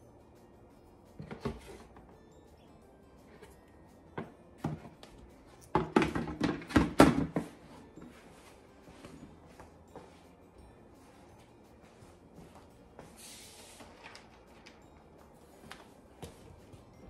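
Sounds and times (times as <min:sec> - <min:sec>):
plastic clacks and knocks: 0:05.7 - 0:07.5.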